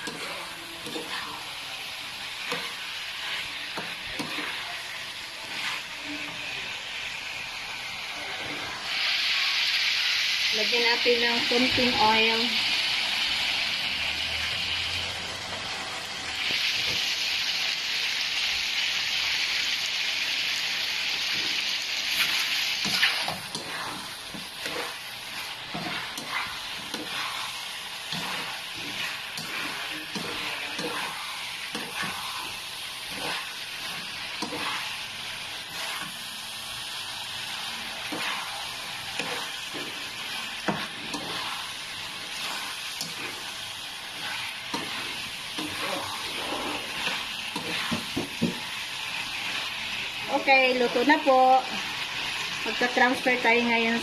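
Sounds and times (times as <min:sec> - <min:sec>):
spatula scraping a pan: 0:00.0 - 0:06.6, 0:21.2 - 0:36.3, 0:37.4 - 0:51.4
gizzards sizzling in a pan: 0:00.0 - 0:54.0.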